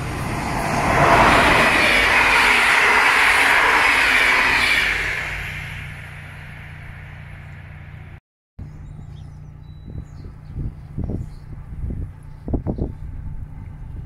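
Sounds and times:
train coaches rushing past: 0.0s - 8.2s
low steady hum: 4.4s - 14.0s
faint bird chirps: 7.9s - 11.5s.

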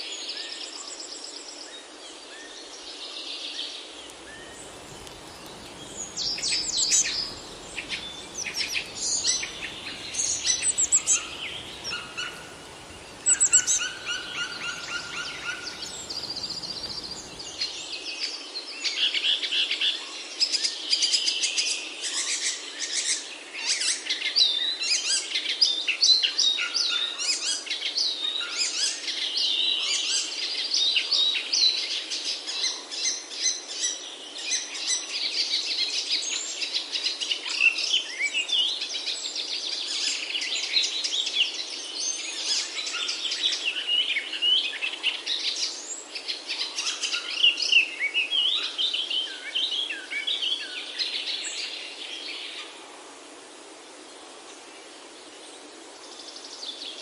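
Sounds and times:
low background noise: 0.0s - 26.5s
songbirds chirping and singing: 4.0s - 18.0s.

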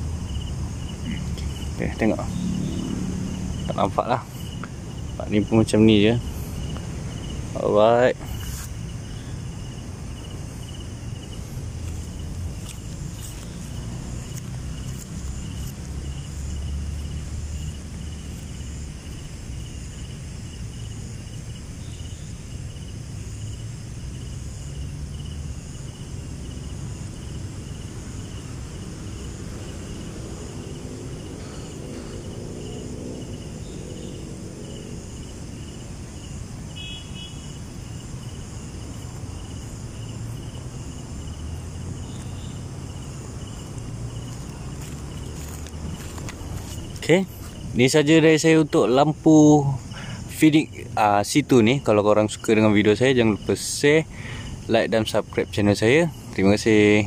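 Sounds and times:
faint distant engine hum: 0.0s - 48.6s
crickets chirping: 0.0s - 57.0s.

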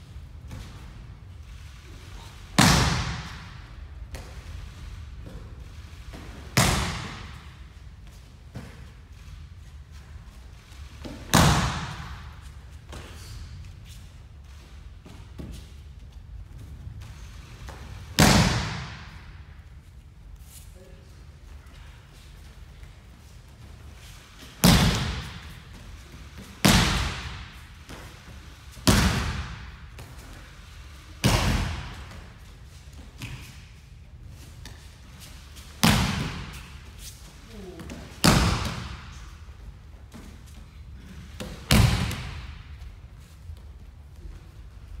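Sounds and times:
body slapping a mat: 2.5s - 4.5s, 5.2s - 9.3s, 11.0s - 14.0s, 17.0s - 19.3s, 24.0s - 30.5s, 31.2s - 33.7s, 35.6s - 37.2s, 37.8s - 39.4s, 41.3s - 43.3s.

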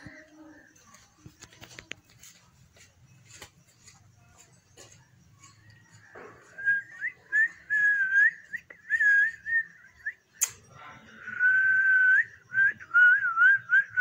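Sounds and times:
person whistling: 6.5s - 10.2s
sharp click: 10.4s - 10.7s.

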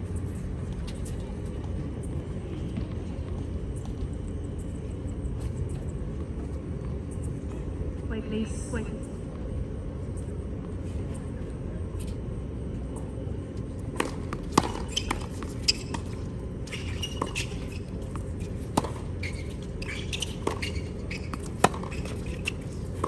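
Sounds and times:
steady low rumble: 0.0s - 19.9s
tennis ball bouncing: 13.9s - 23.0s
rackets striking tennis ball: 14.0s - 16.2s.

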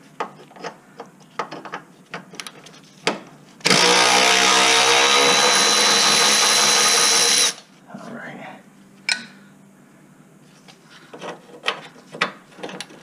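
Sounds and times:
power tool running: 3.6s - 7.6s.

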